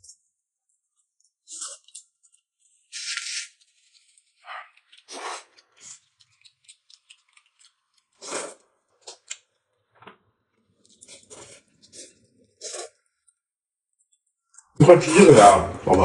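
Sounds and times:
noodles being slurped: 0:01.4 - 0:09.6, 0:10.6 - 0:13.2, 0:14.6 - 0:16.0
wet chewing clicks: 0:01.4 - 0:09.7.

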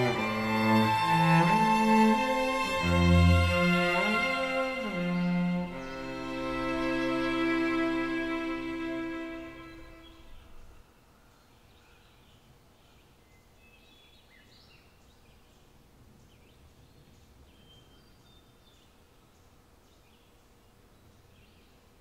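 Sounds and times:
low background hush: 0:00.0 - 0:13.6.

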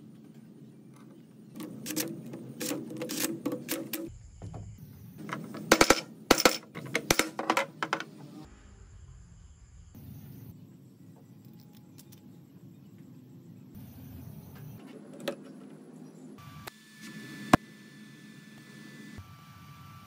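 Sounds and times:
sharp metallic clicks and knocks: 0:05.2 - 0:08.1.

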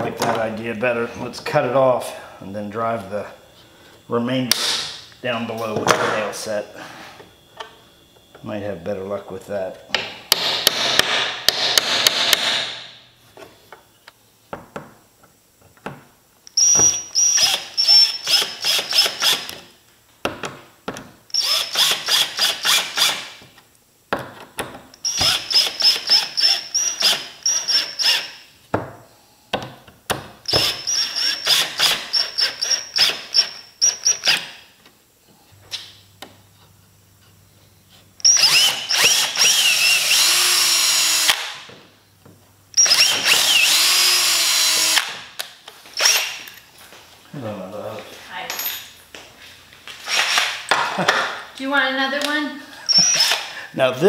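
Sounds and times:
cordless drill boring into wood: 0:16.6 - 0:19.6, 0:21.4 - 0:23.3, 0:25.0 - 0:28.4, 0:30.5 - 0:34.5, 0:38.2 - 0:41.6, 0:42.8 - 0:45.2, 0:46.0 - 0:46.4, 0:52.9 - 0:53.5.

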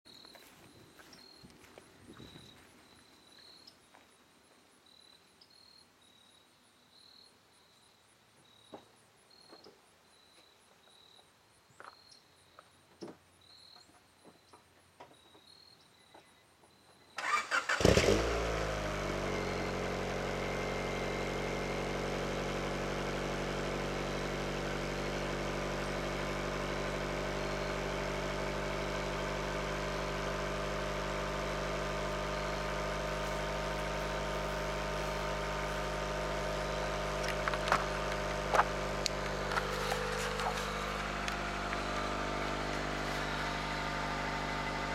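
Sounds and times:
starter motor cranking: 0:17.2 - 0:18.6, 0:37.0 - 0:44.9
car engine revving and idling: 0:17.6 - 0:44.9.

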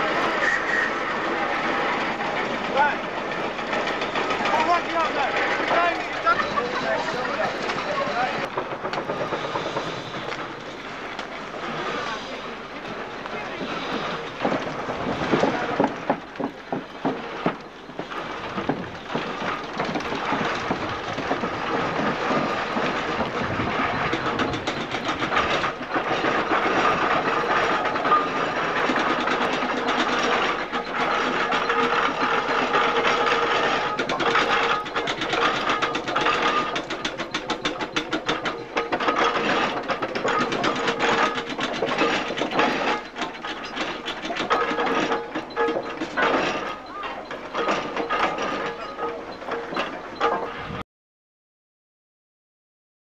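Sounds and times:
steam engine clatter and exhaust beats: 0:00.0 - 0:50.8.

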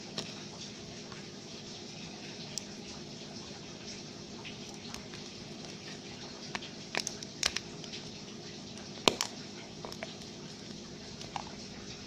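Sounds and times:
slime squishing: 0:04.4 - 0:12.0
sticky pops and clicks: 0:06.5 - 0:08.0, 0:09.0 - 0:10.3.

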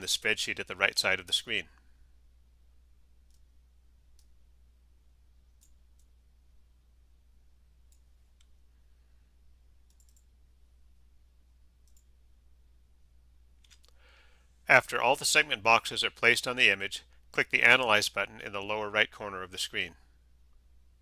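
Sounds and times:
low steady hum: 0:00.0 - 0:21.0
computer mouse clicks: 0:03.2 - 0:03.5, 0:05.5 - 0:06.2, 0:07.9 - 0:08.6, 0:09.8 - 0:10.3, 0:11.8 - 0:12.1, 0:13.6 - 0:14.0.

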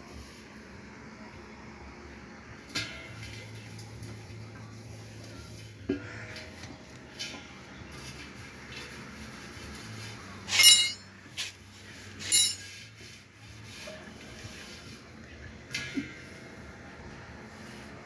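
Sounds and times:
light metallic clinks: 0:10.5 - 0:11.1, 0:12.3 - 0:12.7
ringing metal squeaks: 0:10.5 - 0:11.1, 0:12.2 - 0:12.7.

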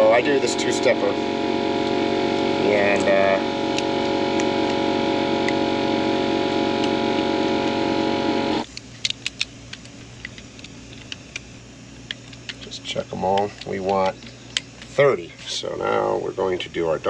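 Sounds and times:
loud machine drone: 0:00.0 - 0:08.6.

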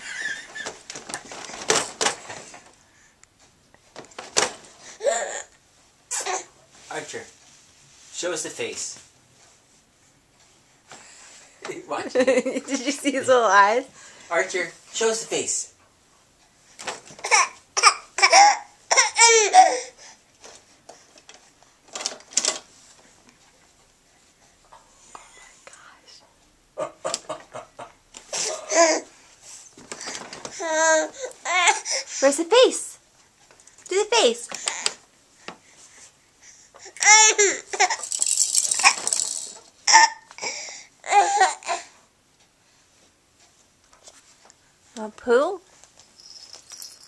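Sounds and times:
baby laughing: 0:00.0 - 0:00.8, 0:17.2 - 0:19.9, 0:37.0 - 0:38.1, 0:39.8 - 0:41.8
baby squealing: 0:17.2 - 0:19.9, 0:37.0 - 0:39.2, 0:39.8 - 0:40.3.

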